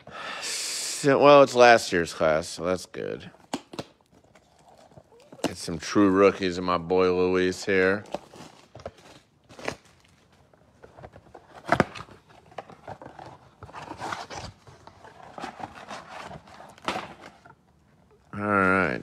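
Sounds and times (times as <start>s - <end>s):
cardboard box rustling and scraping: 10.8s - 17.5s.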